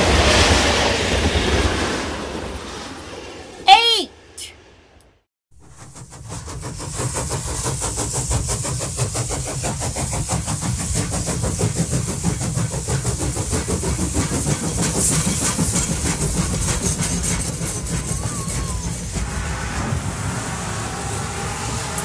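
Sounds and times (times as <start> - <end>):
model train rumbling on track: 5.6 - 22.0
rapid clicking of wheels on track: 5.6 - 22.0.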